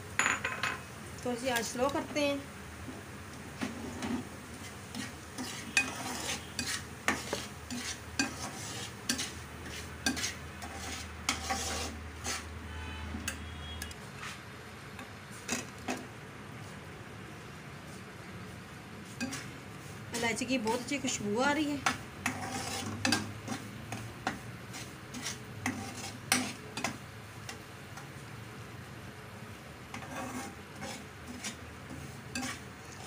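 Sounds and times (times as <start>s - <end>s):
faint sizzle: 0.0s - 33.0s
metal spoon scraping a pan: 3.6s - 14.4s, 19.1s - 19.5s, 20.2s - 28.1s, 29.9s - 33.0s.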